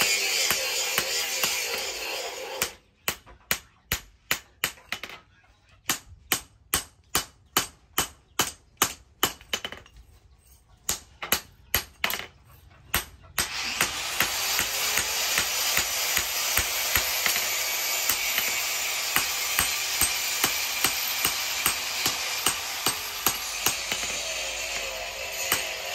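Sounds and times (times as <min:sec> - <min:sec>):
hammer striking metal on anvil: 0:00.0 - 0:05.1, 0:12.9 - 0:25.9.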